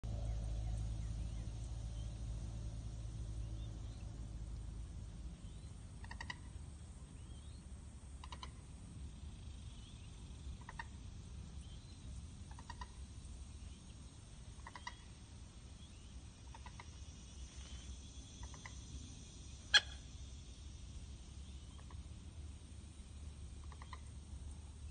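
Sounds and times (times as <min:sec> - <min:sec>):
bird clucking calls: 0:06.0 - 0:06.6, 0:08.2 - 0:08.6, 0:10.5 - 0:11.0, 0:12.5 - 0:13.0, 0:14.5 - 0:15.2, 0:16.5 - 0:17.1, 0:18.4 - 0:18.8, 0:19.7 - 0:20.1, 0:21.7 - 0:22.1, 0:23.6 - 0:24.2.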